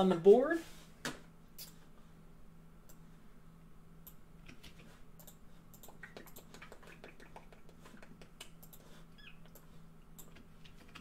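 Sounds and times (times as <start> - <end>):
faint steady hum: 0.0 - 11.0
keyboard keystrokes and mouse clicks: 4.0 - 11.0.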